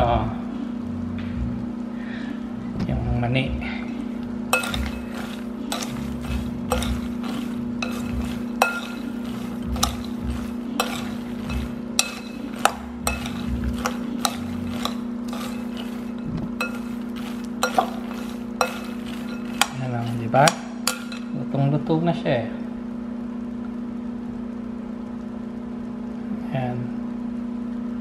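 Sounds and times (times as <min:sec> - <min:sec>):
microwave oven humming: 0:00.0 - 0:28.0
spoon clinking against glass bowl: 0:04.5 - 0:21.3.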